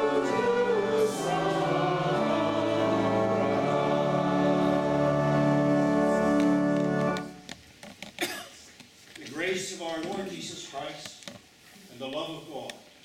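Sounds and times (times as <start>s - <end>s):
choir singing: 0.0s - 7.3s
faint rustles and clicks: 6.2s - 13.0s.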